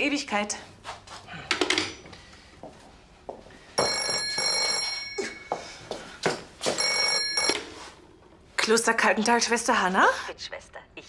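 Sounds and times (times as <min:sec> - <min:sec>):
telephone ringing: 0:03.8 - 0:05.6, 0:06.8 - 0:07.9.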